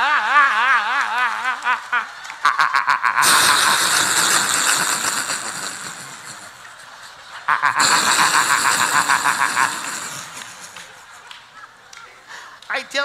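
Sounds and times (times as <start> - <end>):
men hacking and gagging: 2.6 - 6.7, 7.5 - 11.1.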